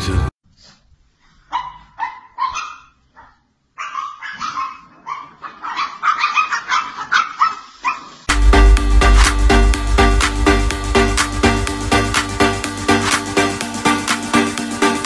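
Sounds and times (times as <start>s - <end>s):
dog barking: 1.5s - 8.2s
music with steady beat: 8.3s - 15.0s.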